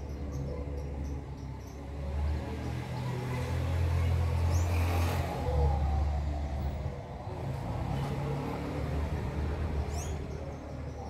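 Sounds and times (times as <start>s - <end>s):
vehicle engine humming: 0.0s - 11.0s.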